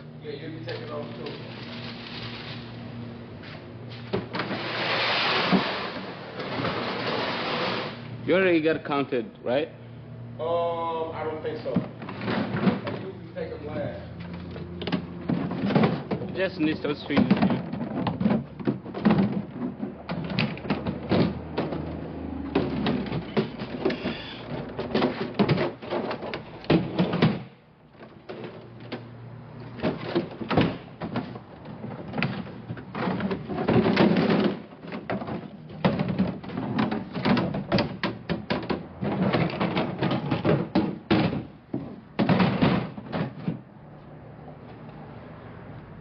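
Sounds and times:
roller conveyor clattering: 0.3s - 2.9s, 4.0s - 8.0s, 11.6s - 43.6s
plastic totes bumping: 0.3s - 8.5s, 11.6s - 43.8s.

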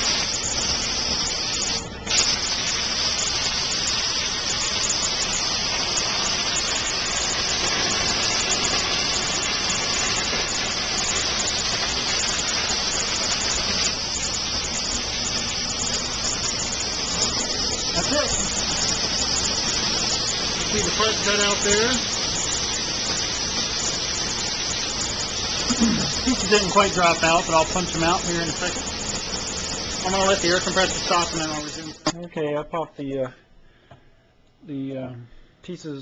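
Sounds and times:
plasma cutter hissing: 0.0s - 32.1s.

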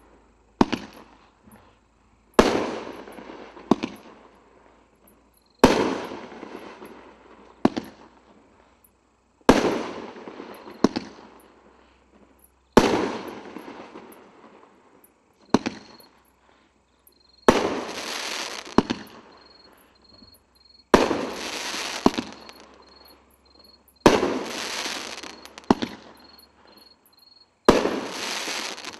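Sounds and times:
firework bangs: 0.6s - 1.2s, 2.4s - 4.3s, 5.6s - 8.3s, 9.4s - 11.5s, 12.8s - 14.4s, 15.5s - 16.1s, 17.4s - 23.2s, 24.0s - 26.8s, 27.6s - 28.9s.

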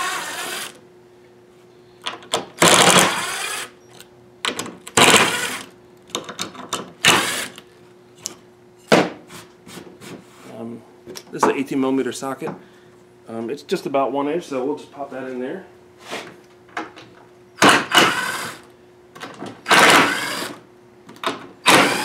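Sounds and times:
cordless drill running: 0.0s - 0.8s, 2.6s - 3.8s, 5.0s - 5.7s, 7.0s - 7.6s, 17.8s - 18.7s, 19.7s - 20.6s, 21.6s - 22.0s.

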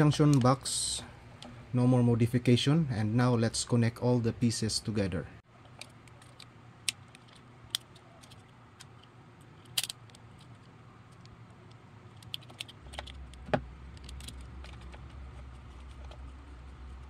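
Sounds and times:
small clicks and rattles: 5.6s - 17.0s.

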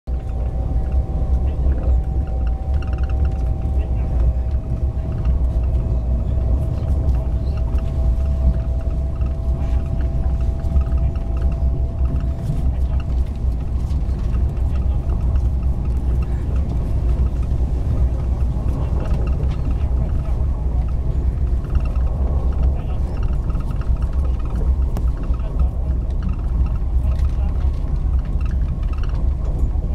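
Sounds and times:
train rumble inside carriage: 0.0s - 29.9s.

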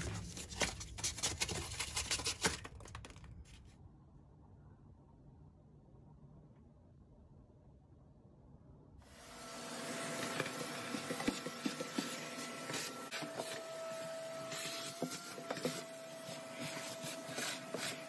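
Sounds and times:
vacuum cleaner running: 9.1s - 18.0s.

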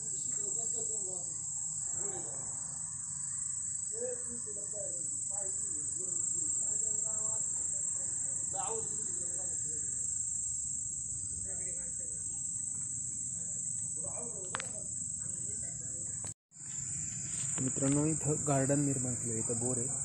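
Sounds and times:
faint murmur of voices: 0.0s - 2.7s, 3.9s - 10.1s, 11.1s - 16.3s
crickets chirring: 0.0s - 20.0s.

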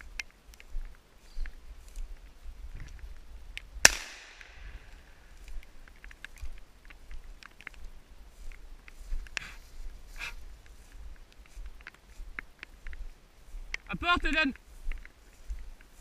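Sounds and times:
shotgun shot with echo: 3.8s - 4.9s.

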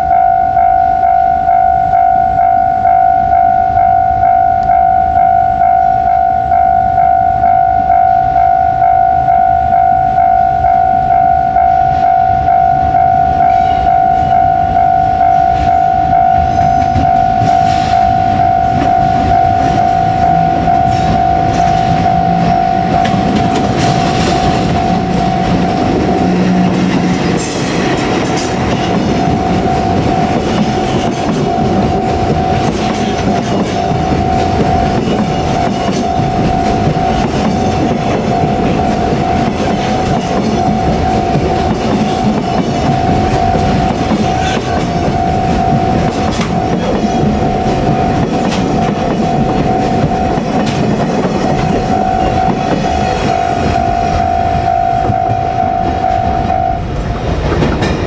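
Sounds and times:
crossing warning bell ringing: 0.0s - 58.0s
train wheels clattering over rail joints: 20.8s - 53.8s, 57.0s - 58.0s.

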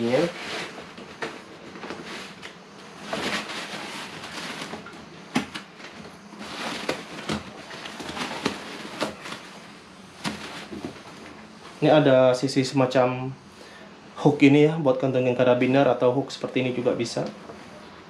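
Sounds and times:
fabric rustling: 0.0s - 12.0s.

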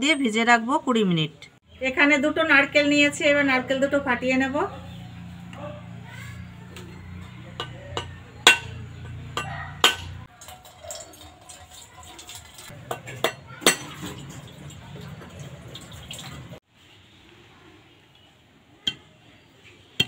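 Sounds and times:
water running into steel bowl: 9.3s - 16.6s.

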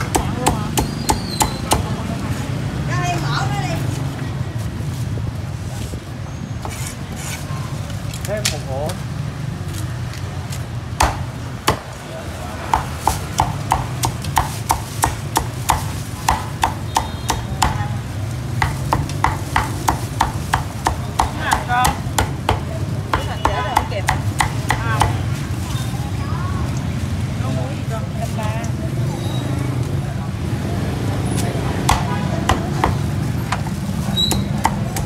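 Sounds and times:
cleaver chopping on wooden block: 0.0s - 1.9s, 11.0s - 12.0s, 12.7s - 17.8s.

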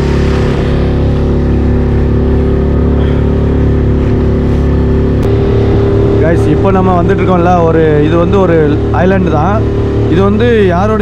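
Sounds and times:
hull through choppy water: 0.0s - 11.0s
outboard motor running: 0.0s - 11.0s.

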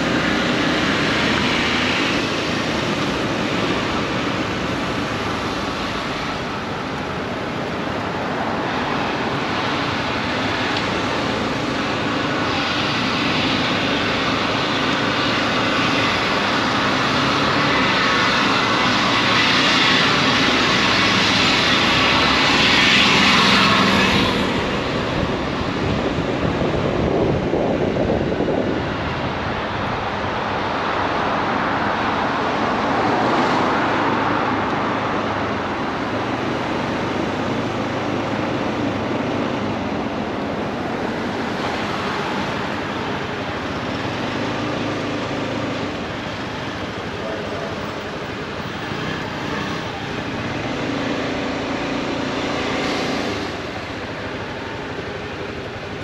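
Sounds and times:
wind rushing over microphone: 0.0s - 56.0s.

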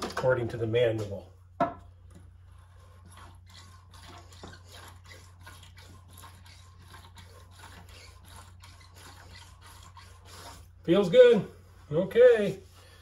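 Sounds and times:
oil squishing in fork leg: 2.0s - 10.8s.

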